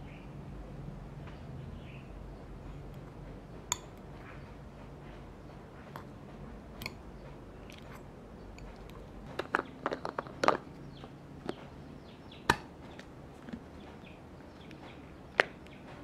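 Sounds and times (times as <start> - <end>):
fork clicking on glass bowl: 3.7 - 4.1, 6.8 - 7.0
fork mashing eggs squishing: 5.8 - 10.6.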